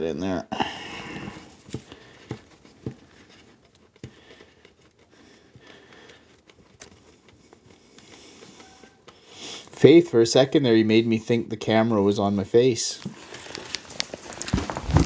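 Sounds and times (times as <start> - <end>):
light rubbing: 1.2 - 10.3.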